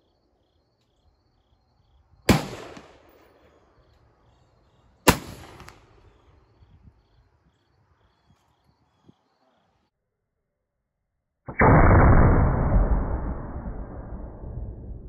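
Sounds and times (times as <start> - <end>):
rifle shots with echo: 2.3 - 3.6, 5.1 - 6.2.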